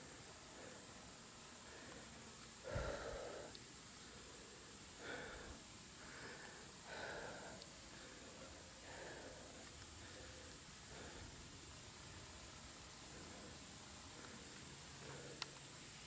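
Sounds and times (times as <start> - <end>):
person breathing out sharply: 1.7 - 3.5.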